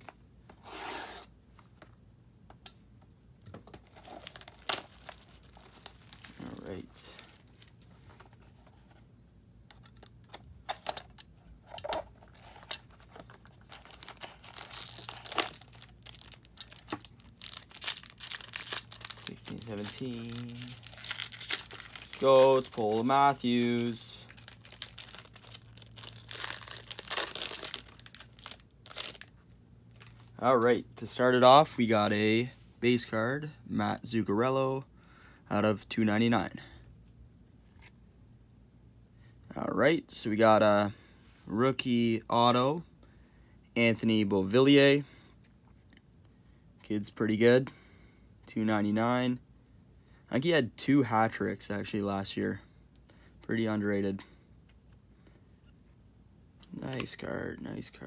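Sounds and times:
sharp plastic crackle: 3.8s - 7.8s, 12.7s - 30.4s
plastic wrap tearing: 4.0s - 7.7s, 13.6s - 29.3s
plastic crinkles and clicks: 12.6s - 30.3s.

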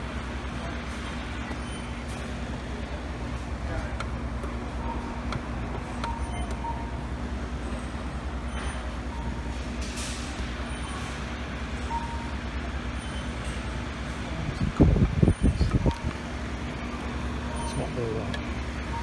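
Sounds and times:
electric fans humming: 0.0s - 19.0s
faint short beeps: 8.5s - 9.6s, 17.5s - 18.2s.

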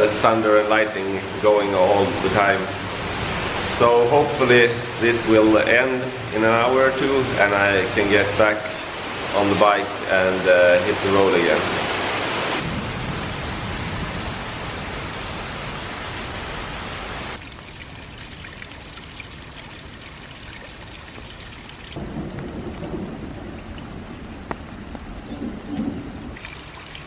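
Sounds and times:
heavy rain pouring: 0.0s - 27.0s.

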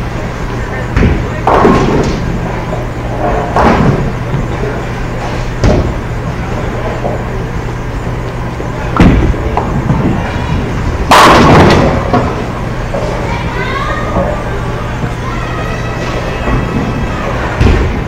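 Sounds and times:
steady low hum: 0.0s - 18.0s
bowling pins crashing: 9.0s - 13.1s.

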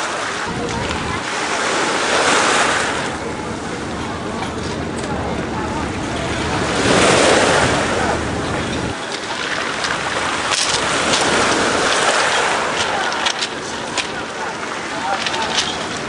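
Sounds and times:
sea water lapping around wader: 0.0s - 16.0s
low rumble: 0.5s - 1.4s
small water splashes: 6.1s - 16.0s.

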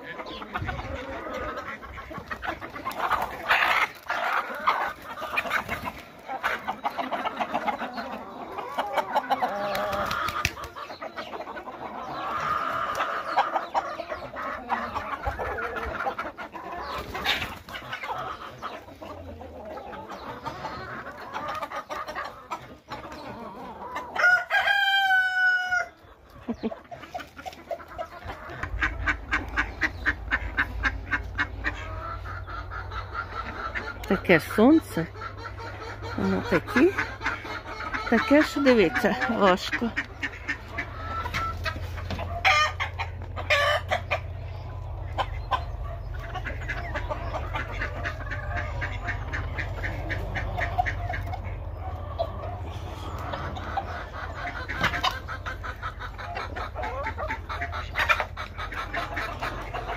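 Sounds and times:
chickens clucking: 0.0s - 59.9s
rooster crowing: 24.2s - 26.0s.

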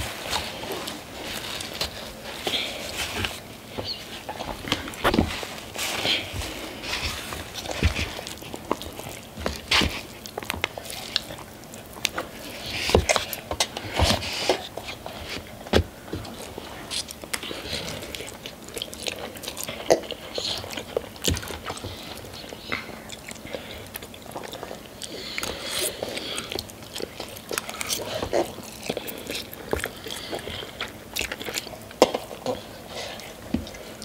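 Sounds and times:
chewing and biting: 0.0s - 34.0s.

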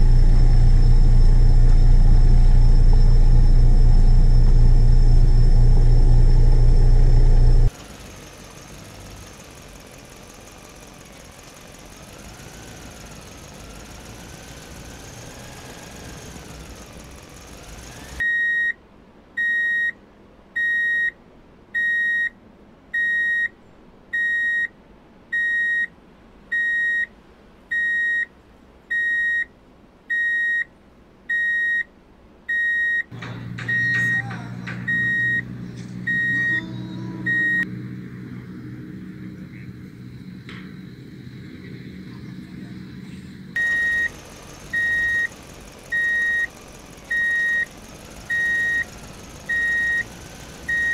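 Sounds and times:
electric motor hum: 0.0s - 7.7s
faint background noise: 18.2s - 36.3s
high electronic beeps: 33.6s - 37.7s, 43.6s - 44.1s, 44.7s - 45.3s.

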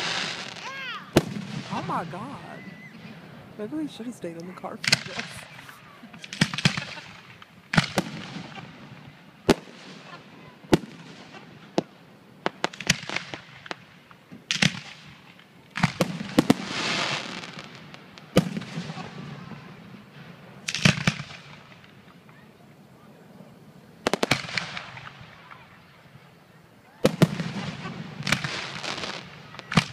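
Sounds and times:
fireworks booming: 0.0s - 22.3s, 24.0s - 25.6s, 27.0s - 29.9s.

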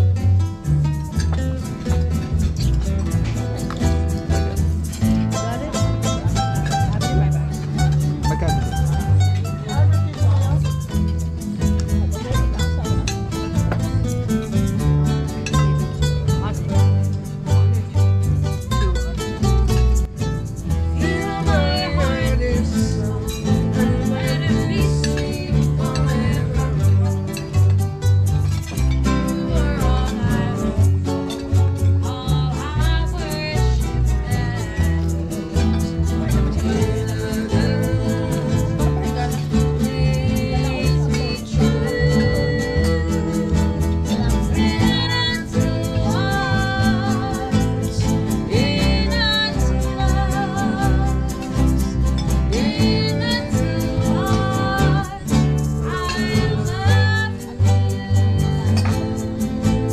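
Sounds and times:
low bass line: 0.0s - 59.9s
strummed acoustic guitar: 0.0s - 59.9s
person singing: 20.5s - 27.8s, 29.0s - 59.9s
person singing long notes: 20.9s - 27.1s, 52.5s - 59.9s.

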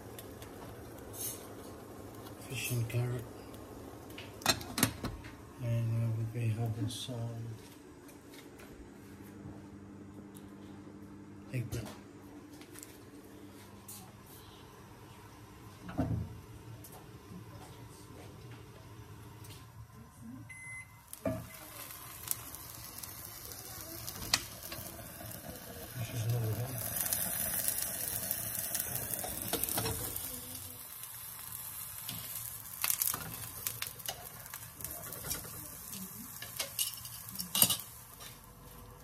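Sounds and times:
eggplant sizzling in hot oil: 0.0s - 4.8s, 21.0s - 39.0s
cookware and utensils clinking: 35.0s - 38.4s.

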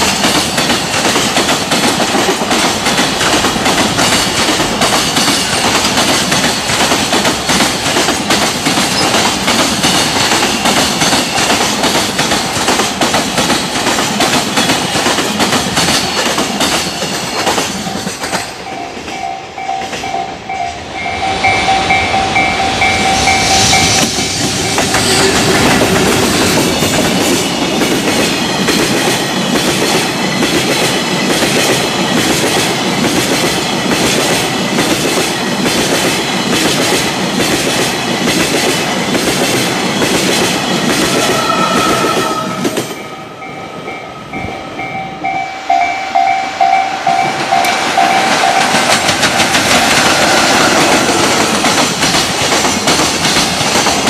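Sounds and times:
train wheels clattering over rail joints: 0.0s - 19.2s, 47.4s - 54.0s.

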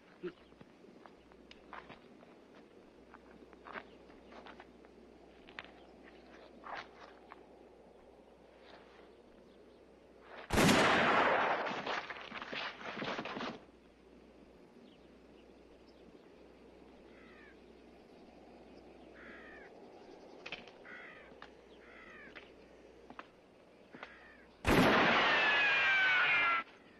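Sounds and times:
bullet ricochet whine: 10.5s - 12.1s, 24.7s - 26.6s
gunshot: 10.5s - 12.2s, 24.7s - 26.1s
faint bird calls: 14.8s - 26.9s.

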